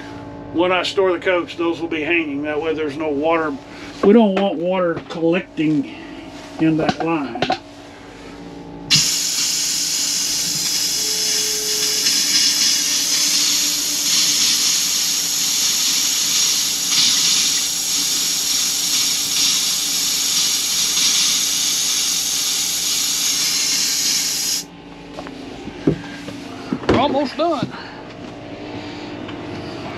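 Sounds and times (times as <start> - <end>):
water spraying into steel basin: 8.9 - 24.6
compressed air hissing from faucet: 8.9 - 24.7.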